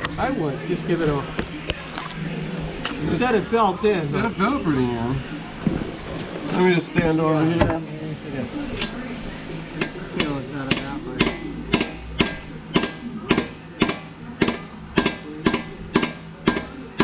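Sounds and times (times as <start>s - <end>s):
hammer tapping on metal: 9.8s - 17.0s.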